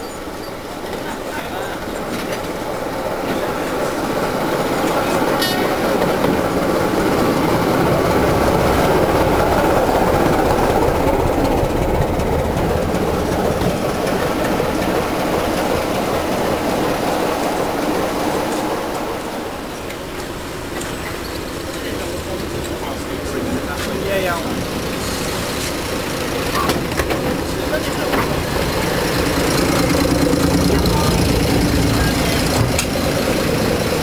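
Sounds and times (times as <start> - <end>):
diesel locomotive engine: 0.0 - 34.0
wheels clattering on rail joints: 0.0 - 34.0.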